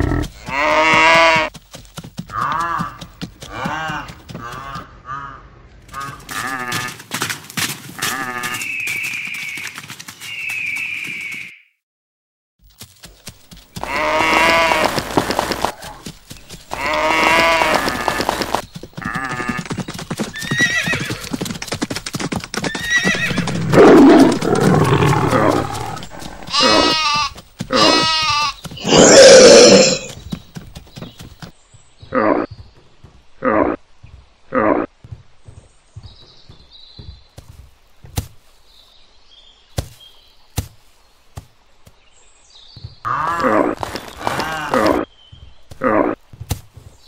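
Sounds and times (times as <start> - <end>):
horse hooves galloping: 0.0 - 5.0, 5.8 - 11.5, 12.6 - 38.7, 42.6 - 47.0
horse neighing: 13.8 - 15.9, 16.7 - 19.7, 20.4 - 21.3, 22.7 - 30.2
animal calls: 13.8 - 16.1, 16.7 - 19.7, 22.7 - 30.2.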